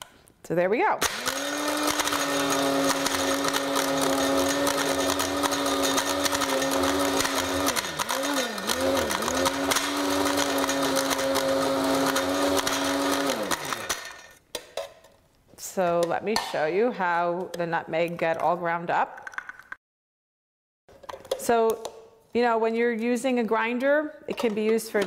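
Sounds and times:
blade grinder motor running: 0:01.0 - 0:14.3.

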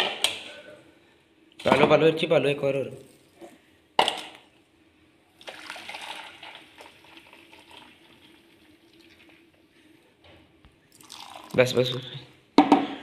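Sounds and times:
juice pouring into steel basin: 0:05.3 - 0:09.6, 0:10.9 - 0:12.2.

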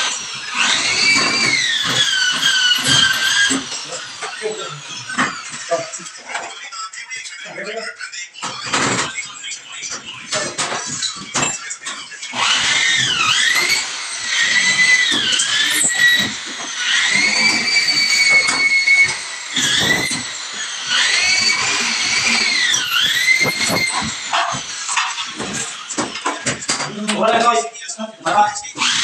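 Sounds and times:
electric drill whining: 0:00.0 - 0:06.1, 0:10.3 - 0:26.7, 0:28.7 - 0:29.0.

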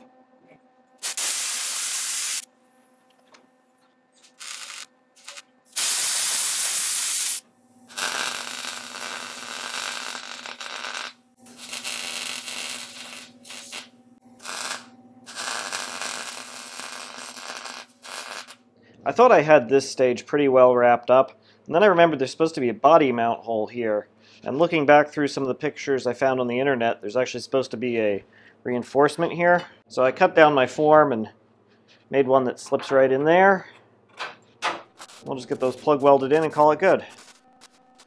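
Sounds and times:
compressed air hissing: 0:01.0 - 0:02.5, 0:04.3 - 0:09.7
mig welder welding: 0:01.0 - 0:02.5, 0:04.2 - 0:18.6, 0:35.0 - 0:38.0.

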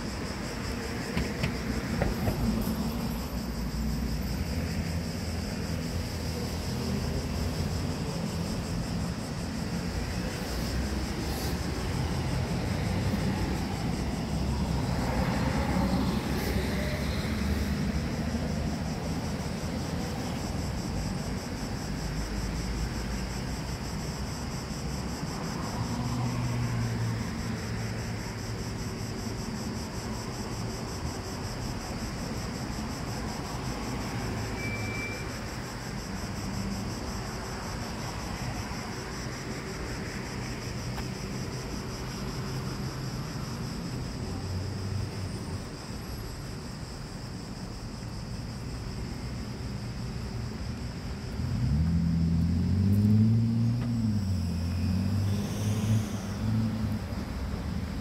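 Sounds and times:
cars passing: 0:00.0 - 0:34.6, 0:35.2 - 0:47.4, 0:48.6 - 0:58.0
bus engine rumbling past: 0:50.8 - 0:58.0.

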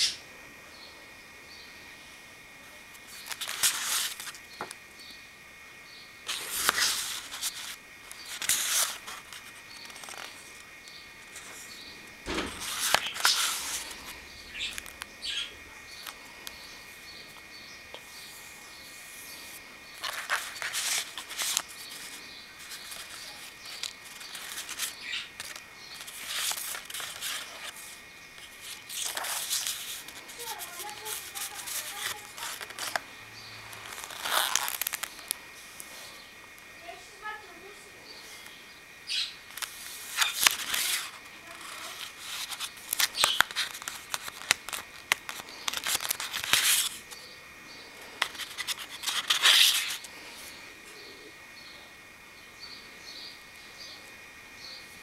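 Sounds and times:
paper pages rustling: 0:03.0 - 0:04.4, 0:06.3 - 0:10.6, 0:12.3 - 0:15.1, 0:19.5 - 0:33.0, 0:33.7 - 0:35.4, 0:39.5 - 0:47.2, 0:48.0 - 0:50.1
faint bird chirps: 0:14.3 - 0:20.0.

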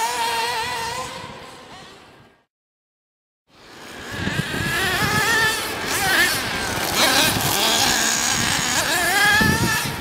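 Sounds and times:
toy car motor whining: 0:00.0 - 0:01.2, 0:03.6 - 0:10.0
wind buffeting microphone: 0:03.9 - 0:10.0.

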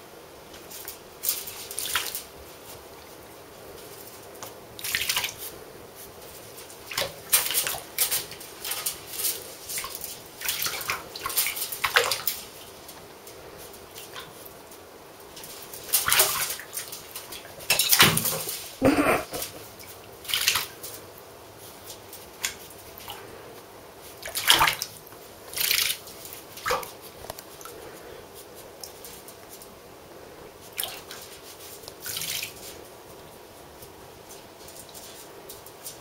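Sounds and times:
ferret splashing in bathwater: 0:00.7 - 0:12.9, 0:13.7 - 0:23.4, 0:24.0 - 0:28.0, 0:30.6 - 0:32.8.

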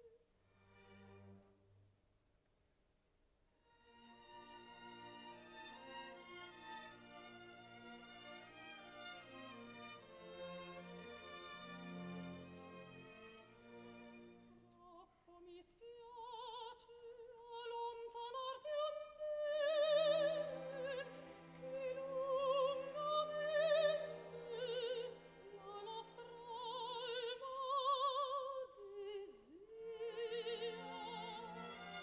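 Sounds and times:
soft orchestral accompaniment: 0:03.6 - 0:32.0
woman singing opera with vibrato: 0:14.8 - 0:32.0.

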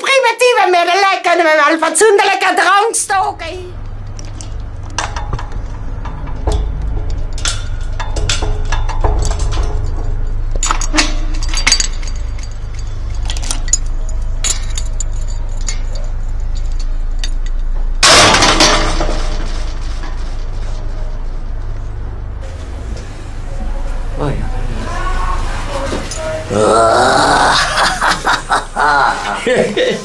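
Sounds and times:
steady low rumble: 0:03.1 - 0:25.4
sharp clicks and clinks: 0:03.8 - 0:18.8
loud crash-like burst: 0:18.0 - 0:20.7.

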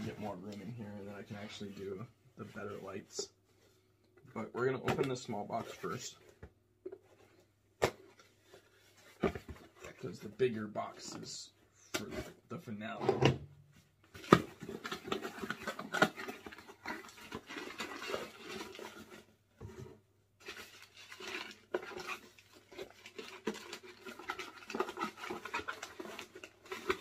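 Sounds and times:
box packaging rustling: 0:14.1 - 0:27.0.

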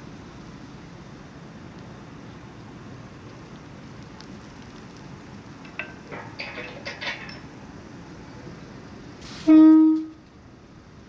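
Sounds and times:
metal barrier arm clinking: 0:05.6 - 0:07.5
train horn blast: 0:09.4 - 0:10.2.

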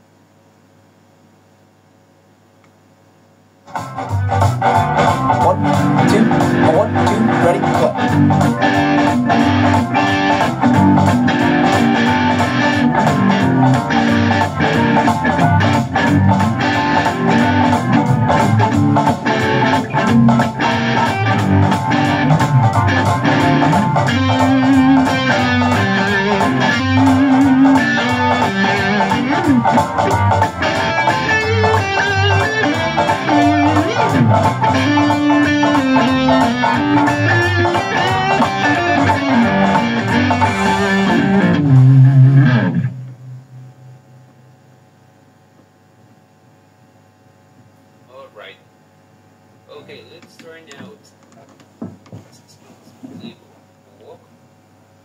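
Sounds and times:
electric guitar through amplifier: 0:03.1 - 0:44.7
backing track with drums: 0:03.6 - 0:43.4.

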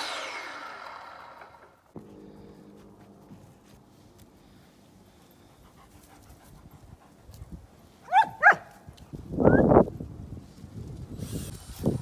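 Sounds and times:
dog yipping: 0:08.1 - 0:08.7.

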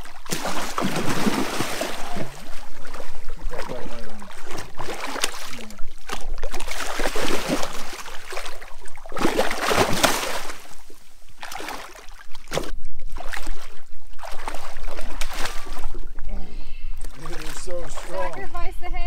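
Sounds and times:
large fish splashing in water: 0:00.0 - 0:16.0.

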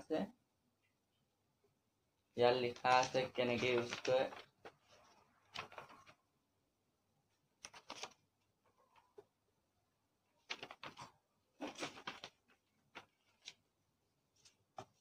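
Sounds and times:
paper rustling: 0:02.6 - 0:06.3, 0:07.6 - 0:09.2, 0:10.4 - 0:15.0.

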